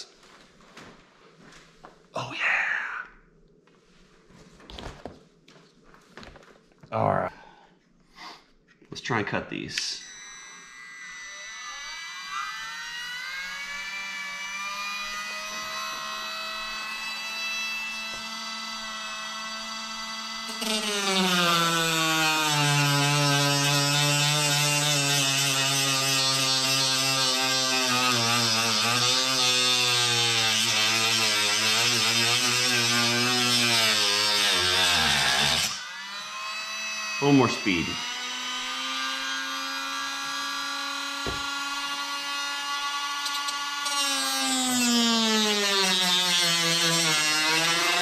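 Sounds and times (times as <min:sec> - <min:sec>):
rotary tool whining: 0:09.8 - 0:48.0.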